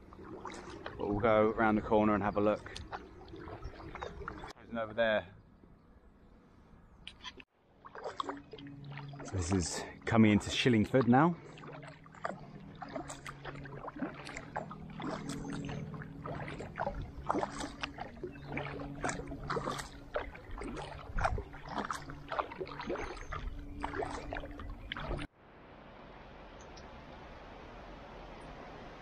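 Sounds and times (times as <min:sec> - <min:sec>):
kayak paddle splashing: 0:00.0 - 0:04.6, 0:07.2 - 0:25.3.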